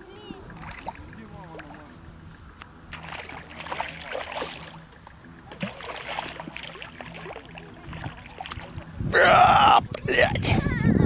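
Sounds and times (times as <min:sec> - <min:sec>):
fish thrashing and splashing: 0:02.9 - 0:08.9.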